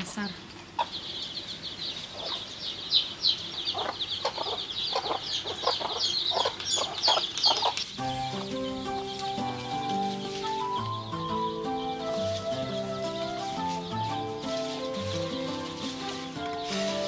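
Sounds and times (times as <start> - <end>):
chickens clucking: 0.5 - 17.0
high steady chirping: 0.8 - 17.0
background music melody: 8.0 - 17.0.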